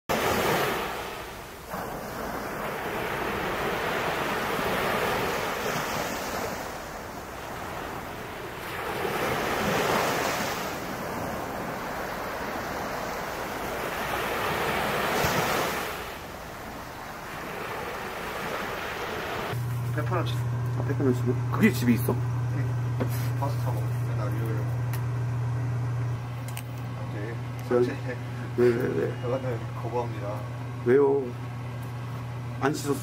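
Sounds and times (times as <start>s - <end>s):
surf breaking on a beach: 0.1s - 20.2s.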